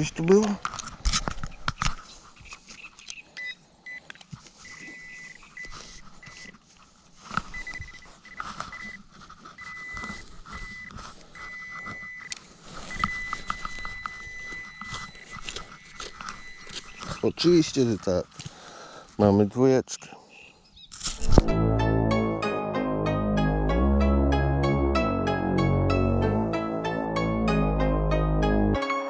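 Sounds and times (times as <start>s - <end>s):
metal detector beeping: 2.5s - 6.6s, 7.4s - 18.2s.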